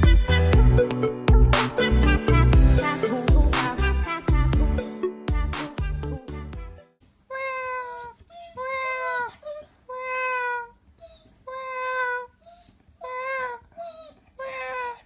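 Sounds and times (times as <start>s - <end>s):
music: 0.0s - 7.0s
dog whining: 7.5s - 15.0s
dog yelping: 7.6s - 15.0s.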